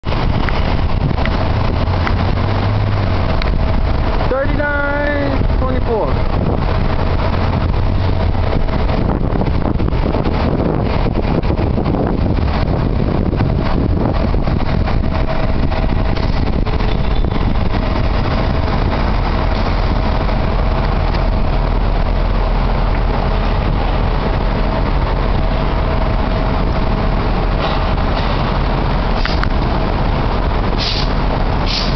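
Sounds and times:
bus engine low drone: 0.0 - 31.9
short air hisses: 30.8 - 31.9.

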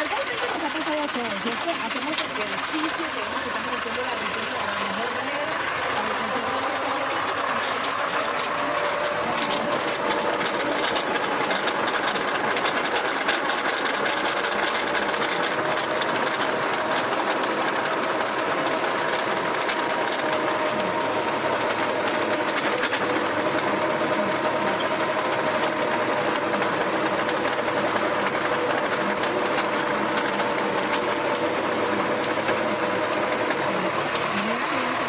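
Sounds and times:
rotary tiller churning soil: 0.0 - 35.0
tractor engine running: 0.0 - 35.0.

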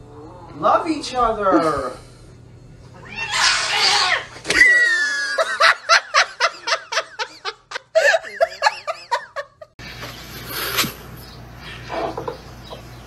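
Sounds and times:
cat hissing: 3.0 - 4.4
cat yowling: 3.0 - 5.3
person laughing hard: 4.6 - 9.7.

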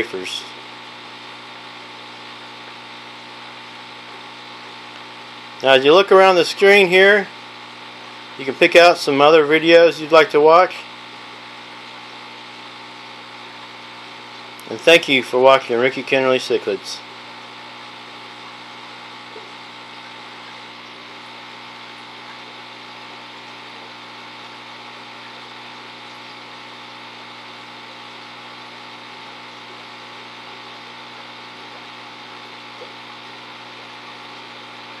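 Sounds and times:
aquarium equipment humming: 0.0 - 35.0.

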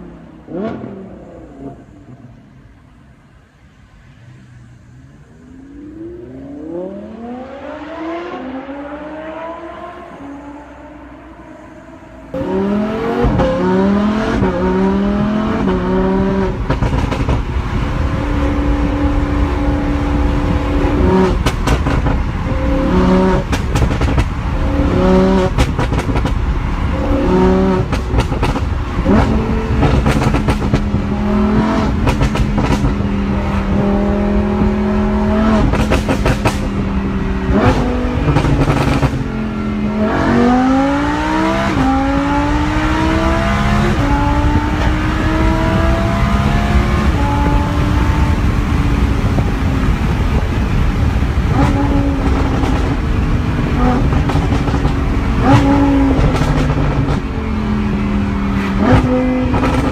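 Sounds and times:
sports car engine accelerating: 4.6 - 59.9
exhaust cracks: 31.8 - 33.1.

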